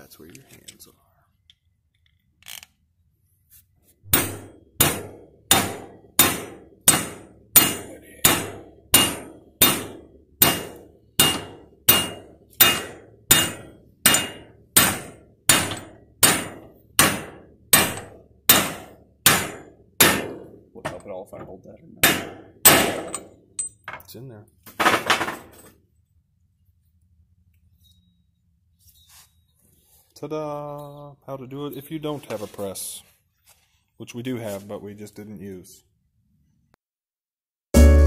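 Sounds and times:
hammer striking steel: 4.1 - 21.1, 22.0 - 23.9.

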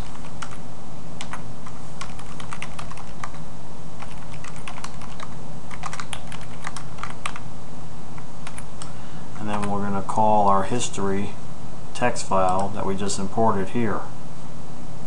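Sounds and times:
typing on computer keyboard: 0.0 - 0.6, 1.2 - 3.4, 4.0 - 7.4
steady low hum: 0.0 - 15.0.

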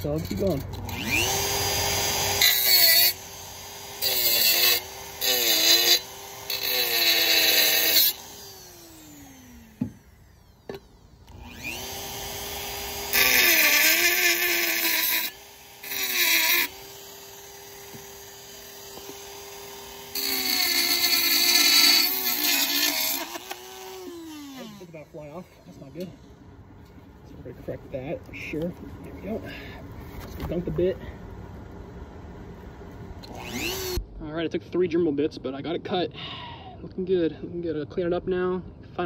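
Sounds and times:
rotary tool motor whine: 0.3 - 26.0, 33.2 - 34.0.

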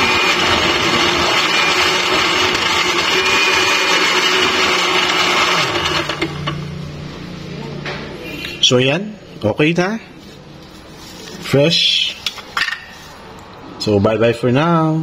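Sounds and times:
blender motor winding down: 0.0 - 6.6
electric blender running: 0.0 - 6.7.

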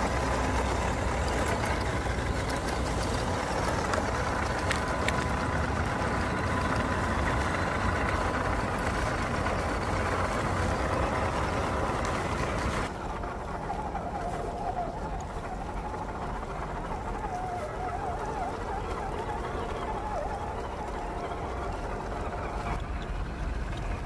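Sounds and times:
rc truck motor whining: 0.0 - 13.0
tyres on dirt: 0.0 - 14.0.

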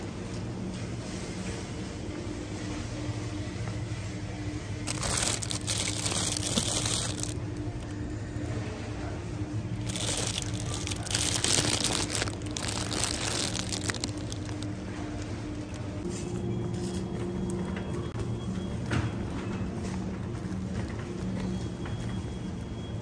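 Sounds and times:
plastic bags crinkling: 4.8 - 8.0, 9.8 - 16.0.

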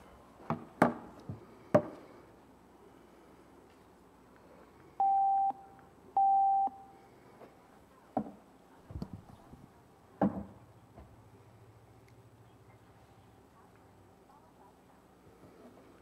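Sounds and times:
electronic beeps: 6.2 - 6.9.

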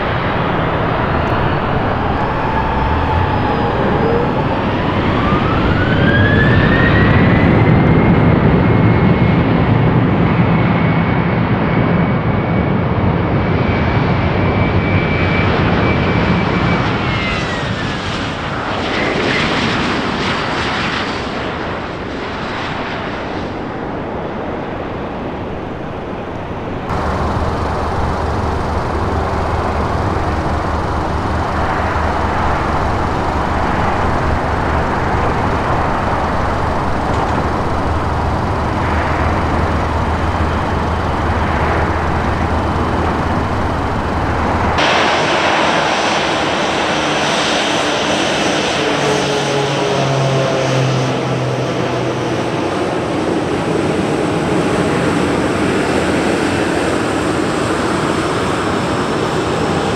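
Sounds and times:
jet engines rumbling and whining: 0.0 - 59.9.

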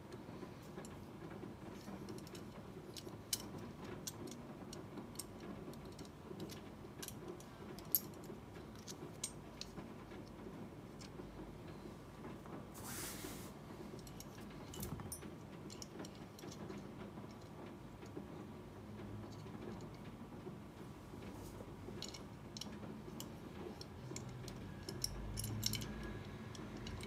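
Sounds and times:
brief rustling scrape: 12.8 - 13.6
light metal clicks and taps: 22.0 - 27.0.

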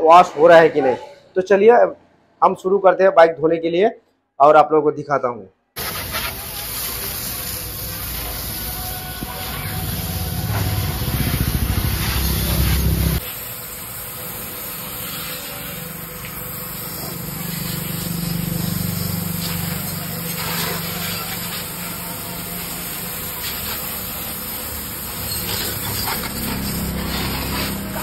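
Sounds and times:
pressure washer spraying: 5.8 - 28.0
pump motor humming: 5.8 - 28.0.

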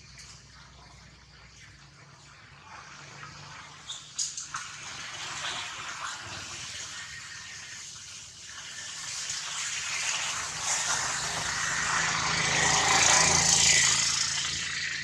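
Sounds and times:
engine drone passing by: 9.8 - 15.0.

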